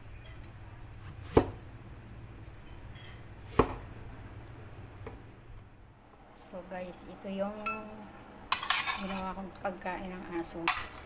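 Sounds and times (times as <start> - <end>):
knife chopping on cutting board: 3.5 - 3.8.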